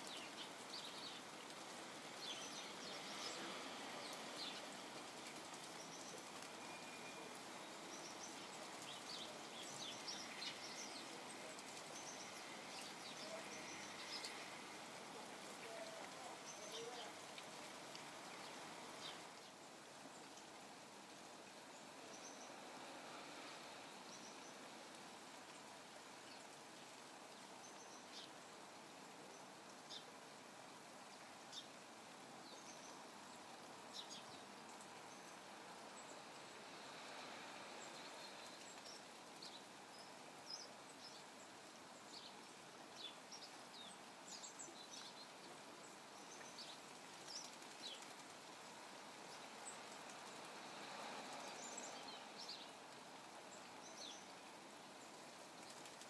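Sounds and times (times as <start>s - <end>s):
faint hiss of rain: 0.0s - 56.0s.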